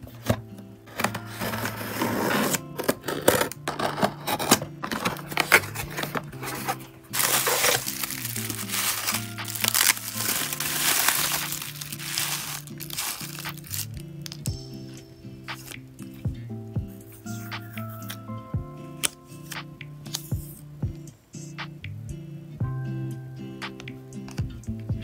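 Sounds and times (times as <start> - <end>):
soft background music: 0.0 - 25.0
cardboard and bubble wrap crinkling: 0.2 - 14.5
pen slitting packing tape: 1.0 - 14.5.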